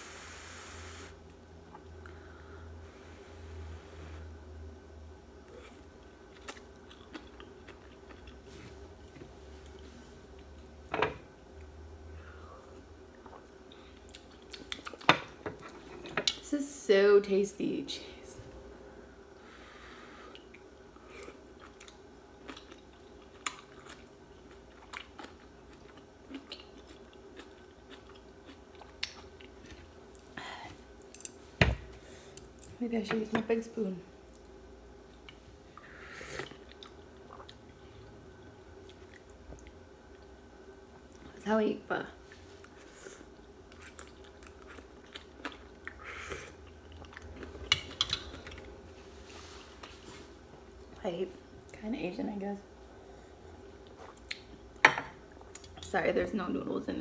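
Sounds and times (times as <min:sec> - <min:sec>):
faint steady hum: 0:00.0 - 0:57.0
person chewing: 0:05.5 - 0:10.5, 0:13.1 - 0:16.4, 0:20.3 - 0:30.3, 0:34.3 - 0:37.8, 0:42.6 - 0:48.8, 0:53.8 - 0:54.6.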